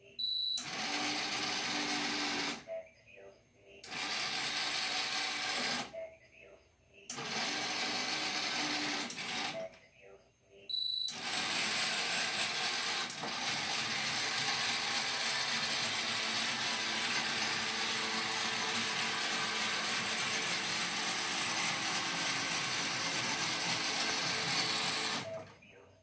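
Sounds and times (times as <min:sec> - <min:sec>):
robot motors whirring: 0:11.1 - 0:25.6.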